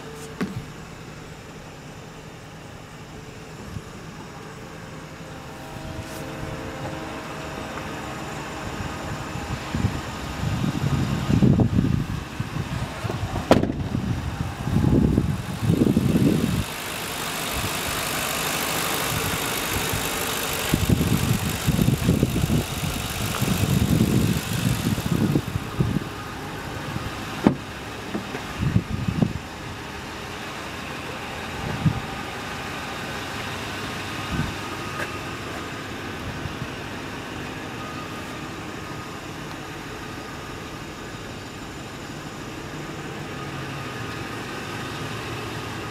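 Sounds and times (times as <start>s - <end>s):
truck engine idling: 0.0s - 45.9s
sharp engine knocks: 13.1s - 13.9s, 27.4s - 28.5s.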